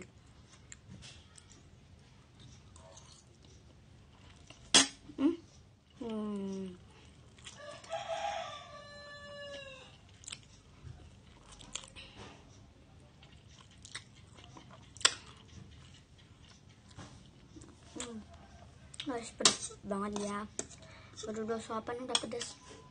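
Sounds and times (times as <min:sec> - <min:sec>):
person chewing noodles: 0:02.3 - 0:04.7, 0:05.6 - 0:08.1, 0:09.8 - 0:12.5, 0:13.2 - 0:19.1
rooster crowing: 0:07.6 - 0:10.0.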